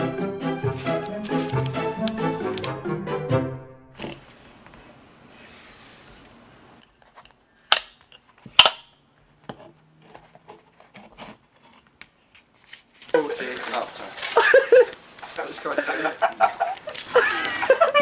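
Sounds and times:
paper taps and ticks: 0:00.7 - 0:02.7
faint hiss: 0:04.2 - 0:06.8.

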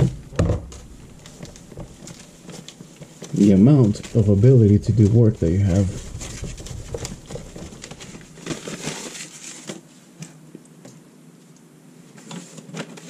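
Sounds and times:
paper towel rubbing whiteboard: 0:00.8 - 0:09.6.

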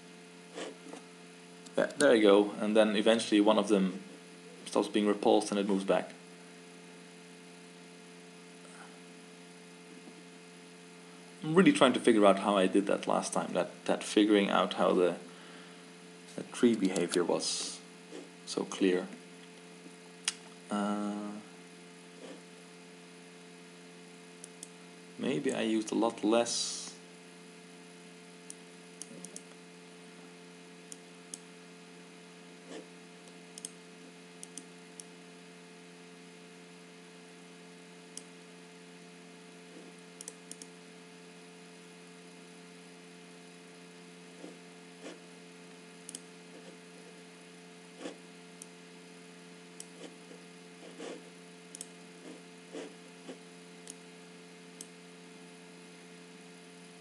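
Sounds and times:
steady hum: 0:00.0 - 0:57.0
computer mouse clicks: 0:28.5 - 0:29.5, 0:32.7 - 0:33.8, 0:34.4 - 0:35.1, 0:40.2 - 0:40.7, 0:46.0 - 0:46.7, 0:51.7 - 0:54.0.

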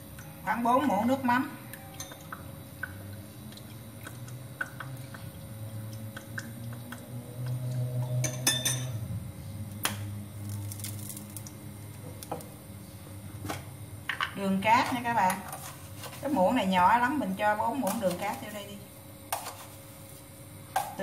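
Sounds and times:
low steady hum: 0:00.0 - 0:21.0
metal spoon clinking ceramic bowl: 0:02.0 - 0:02.3, 0:08.2 - 0:09.0.

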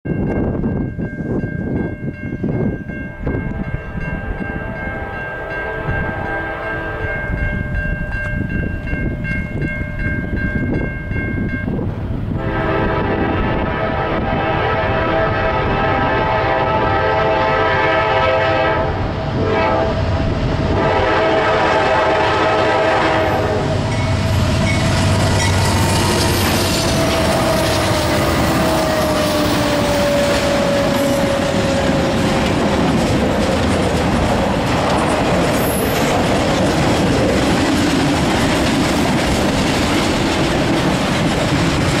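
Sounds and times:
train air horn: 0:03.5 - 0:07.2, 0:12.4 - 0:24.5, 0:25.3 - 0:32.2
locomotives rumbling past: 0:11.6 - 0:42.0
wheels on rails: 0:23.7 - 0:42.0.

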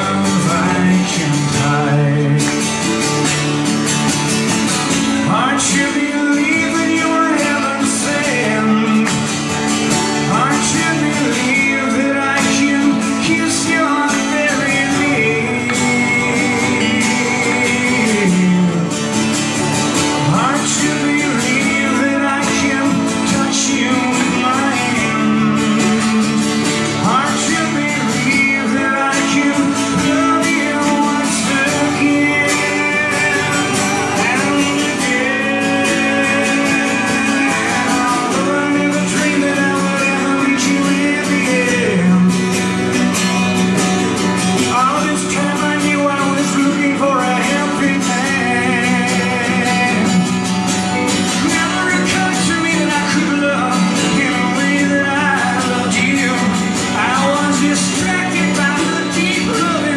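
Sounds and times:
strummed acoustic guitars: 0:00.0 - 0:59.9
voices singing: 0:04.9 - 0:19.0, 0:20.0 - 0:42.6.

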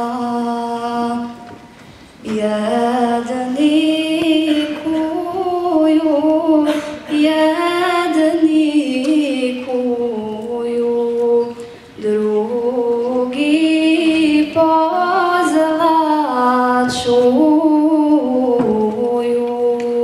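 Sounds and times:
woman singing unaccompanied: 0:00.0 - 0:01.6, 0:02.2 - 0:20.0.

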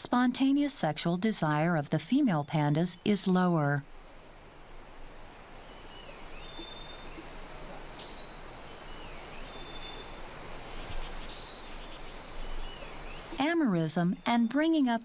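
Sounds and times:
high insect drone: 0:00.0 - 0:14.8
bright bird chirp: 0:05.7 - 0:10.1, 0:10.8 - 0:14.7.

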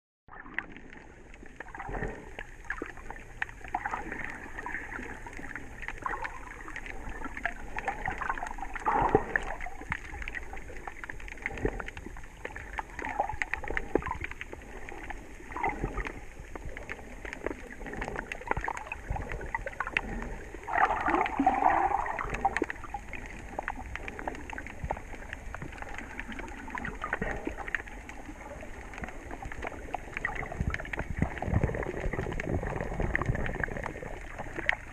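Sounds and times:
underwater gurgling: 0:00.3 - 0:34.9
faint clicks: 0:02.3 - 0:21.4.

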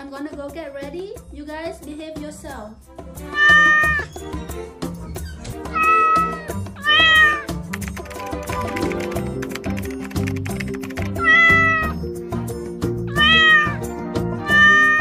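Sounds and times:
background music with beat: 0:00.0 - 0:15.0
cat meowing: 0:03.2 - 0:04.1, 0:05.5 - 0:07.5, 0:11.2 - 0:12.0, 0:13.1 - 0:13.8, 0:14.4 - 0:15.0.

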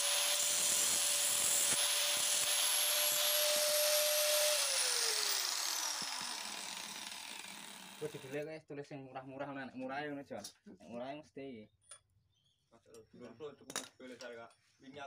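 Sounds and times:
grinder motor whining: 0:00.0 - 0:08.4.

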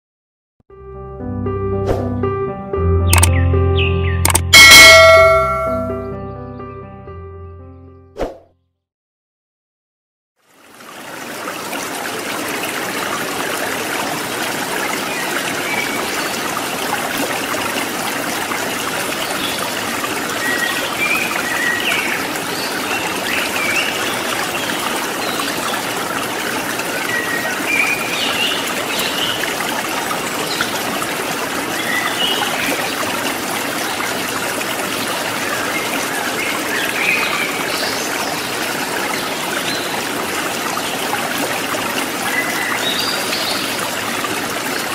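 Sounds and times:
short high chirps: 0:03.1 - 0:06.1
running water: 0:10.4 - 0:44.9.

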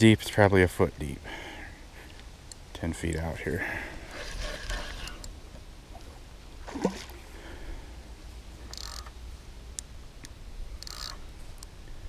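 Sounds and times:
fish splashing in water: 0:06.6 - 0:07.2.

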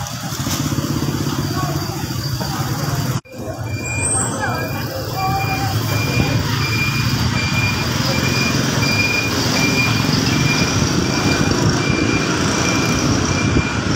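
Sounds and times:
high repeating beep: 0:03.3 - 0:13.9.

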